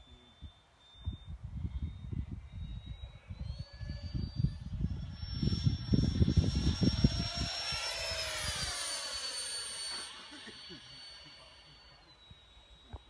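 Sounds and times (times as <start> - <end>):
electric ducted fan whining: 0.0 - 13.0
wind rumbling on microphone: 0.4 - 9.2.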